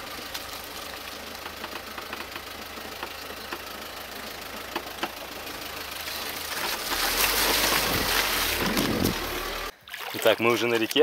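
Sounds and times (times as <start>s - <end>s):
car engine running: 0.0s - 9.7s
tyres and body knocking: 6.6s - 9.6s.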